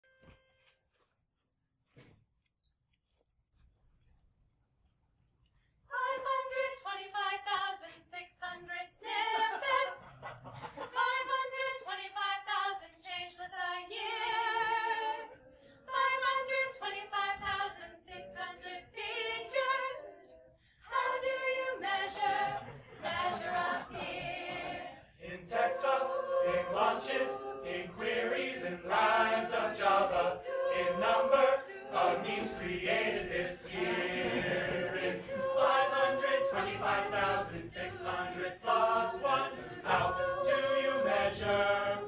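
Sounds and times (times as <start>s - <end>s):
a cappella group singing: 5.9s - 42.0s.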